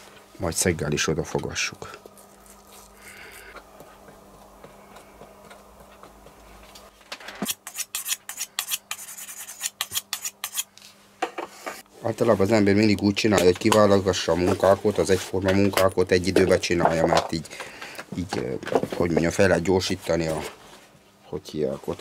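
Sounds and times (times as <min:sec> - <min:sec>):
knife scraping on sharpening rod: 0:07.4 - 0:10.7.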